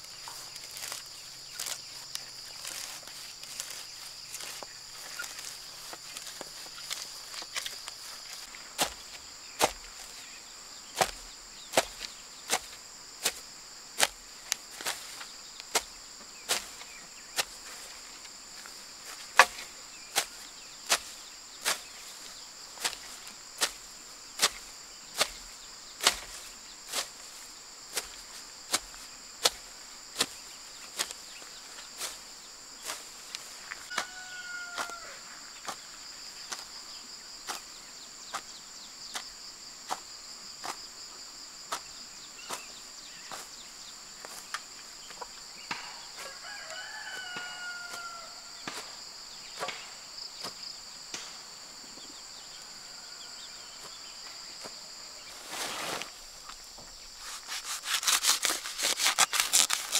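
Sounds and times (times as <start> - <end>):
high insect drone: 0.0 - 59.9
hoe chopping into soil: 0.5 - 10.2, 10.9 - 32.2, 32.8 - 35.9, 37.4 - 37.7, 41.7 - 42.7, 47.0 - 49.0, 49.6 - 51.4
chicken calling: 33.9 - 35.2.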